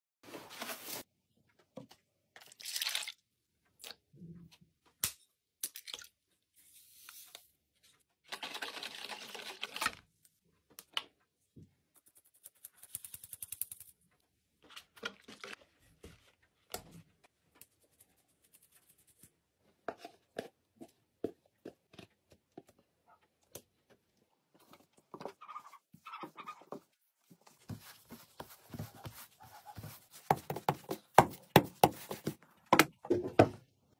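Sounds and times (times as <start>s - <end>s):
rustles and taps: 26.7s - 33.0s
hands kneading dough: 26.8s - 32.6s.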